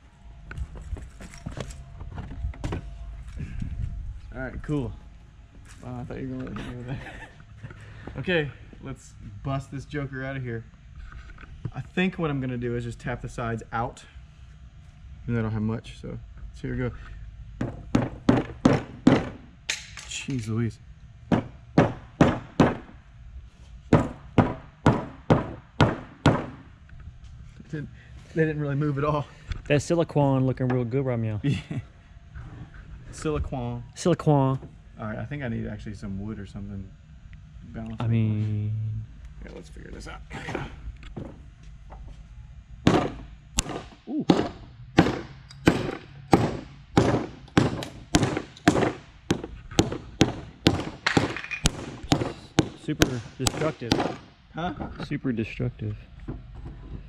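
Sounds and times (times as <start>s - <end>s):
rubber mallet knocking plastic mold: 17.6s - 19.4s, 42.9s - 54.3s.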